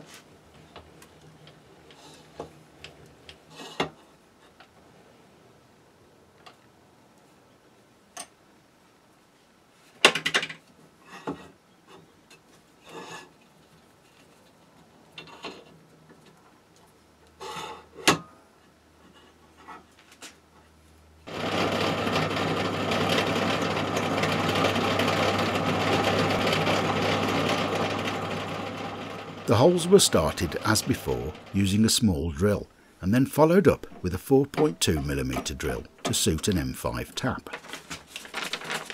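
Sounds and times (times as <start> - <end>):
drill press drilling metal: 21.3 - 31.6.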